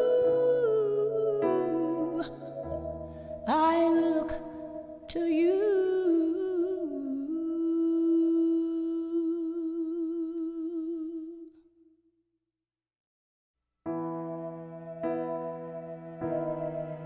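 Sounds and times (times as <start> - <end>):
person singing with vibrato: 0.0 - 11.6.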